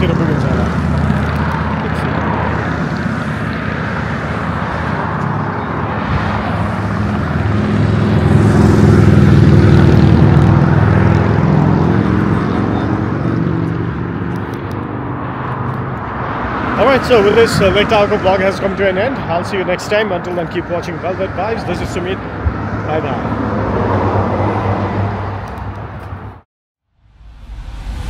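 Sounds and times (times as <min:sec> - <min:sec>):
vehicle road noise hum: 0:00.0 - 0:26.4.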